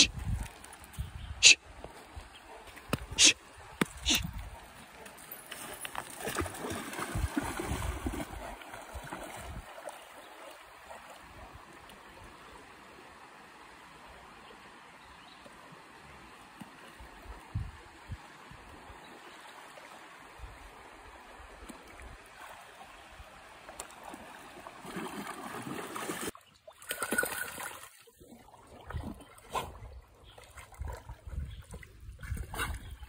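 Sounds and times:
dog splashing in water: 5.5 - 10.0, 24.8 - 29.7.

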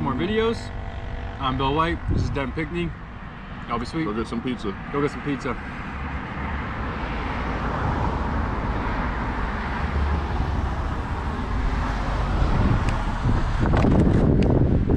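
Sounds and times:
wind rumble on microphone: 0.1 - 3.2, 6.0 - 14.9
car passing with tyre noise: 0.1 - 14.9.

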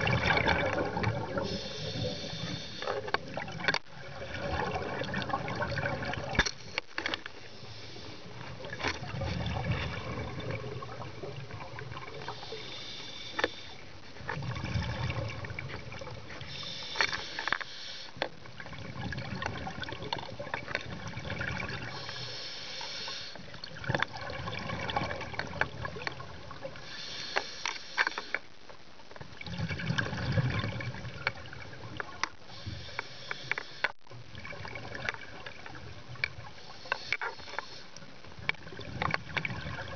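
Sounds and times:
exhaled air bubbling: 0.0 - 7.0, 8.2 - 13.0, 13.7 - 16.9, 18.4 - 22.3, 23.4 - 26.8, 28.6 - 32.6, 33.5 - 37.2, 37.9 - 39.9
scuba regulator breathing underwater: 1.3 - 3.1, 7.5 - 8.4, 12.2 - 13.8, 16.4 - 18.2, 21.8 - 23.5, 26.8 - 28.4, 32.5 - 34.0, 36.6 - 38.0.

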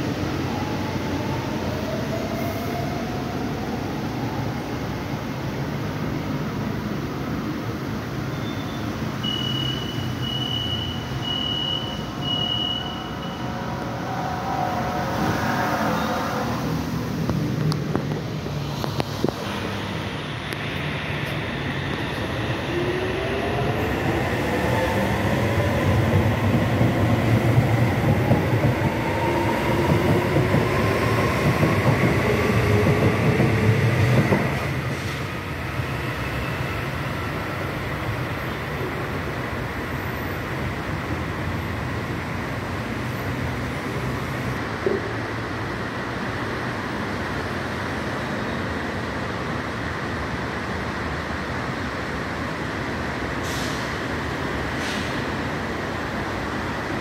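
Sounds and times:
electric train accelerating: 9.3 - 42.7.

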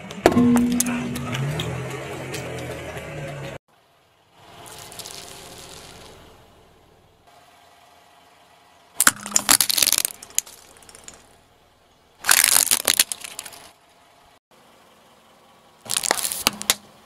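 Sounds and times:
glass baubles cracking and crunching: 4.6 - 6.2, 9.0 - 11.2, 12.2 - 13.7, 15.9 - 16.8.

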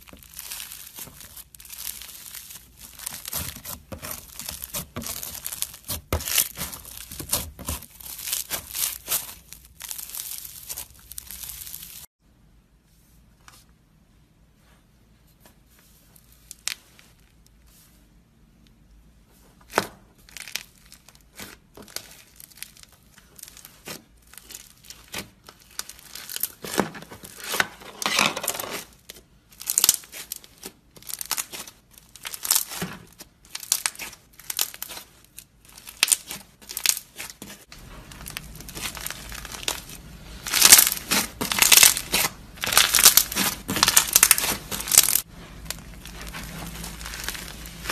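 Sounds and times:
slime crackling and popping: 0.0 - 12.1, 29.6 - 47.9.

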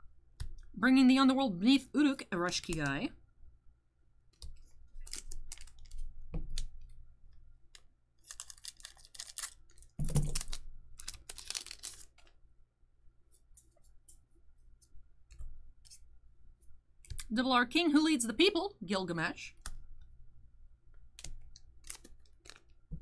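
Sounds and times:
foil wrapper crinkling: 4.9 - 6.7, 8.2 - 12.4, 21.5 - 22.9.

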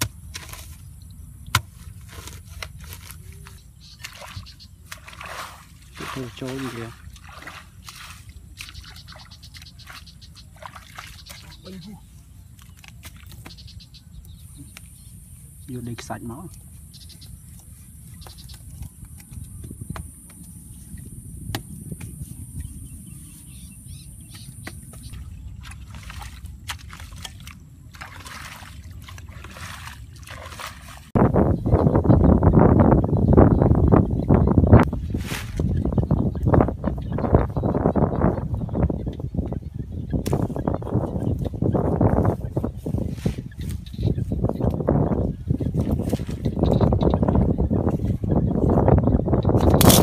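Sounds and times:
hoe chopping into wet soil: 0.0 - 0.8, 1.5 - 4.3, 49.7 - 50.0
hands squelching wet mud: 1.4 - 13.6, 24.8 - 31.2.

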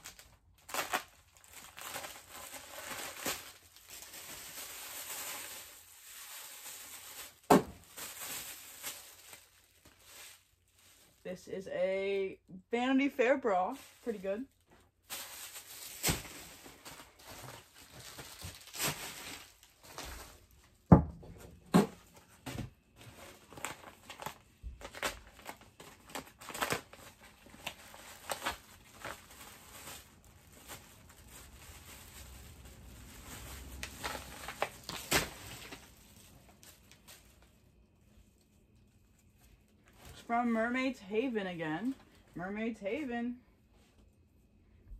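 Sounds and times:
plastic bags and envelopes rustling: 0.0 - 12.2, 12.9 - 44.6.

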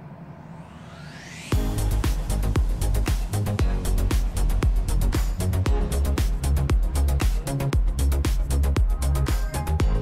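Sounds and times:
background music with kick drum: 1.5 - 10.0.

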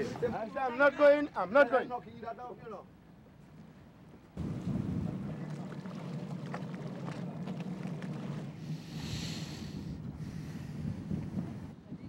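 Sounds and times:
wind noise on microphone: 4.4 - 6.2, 7.8 - 12.0
boat engine running: 4.4 - 10.2.

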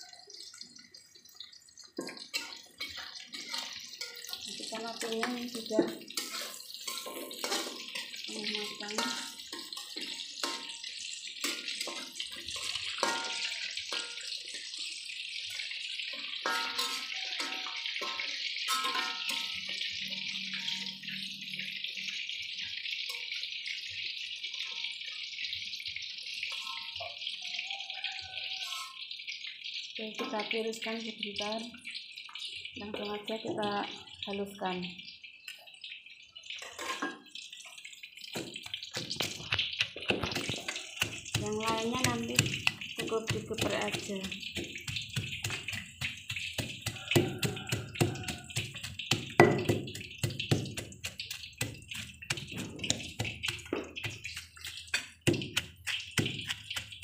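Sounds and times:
hot oil sizzling in a wok: 0.0 - 57.0
pestle pounding in stone mortar: 38.4 - 57.0.

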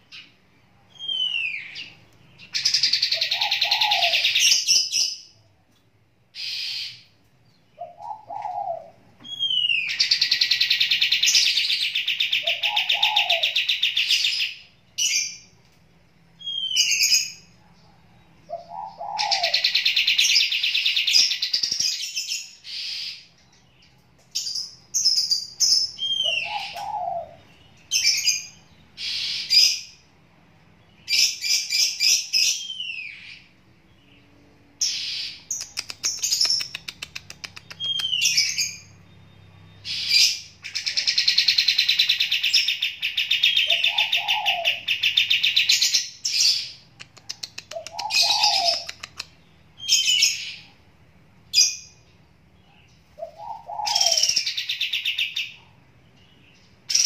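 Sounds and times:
lower bird call: 0.0 - 5.4, 6.4 - 15.6, 16.4 - 24.0, 25.0 - 30.0, 31.0 - 50.8, 51.6 - 57.0
bird singing high whistles: 0.9 - 5.2, 9.3 - 12.1, 16.4 - 17.4.

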